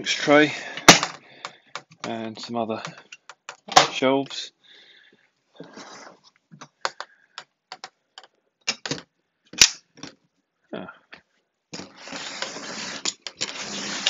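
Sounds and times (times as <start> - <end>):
metal box scraping on cardboard: 11.8 - 14.0.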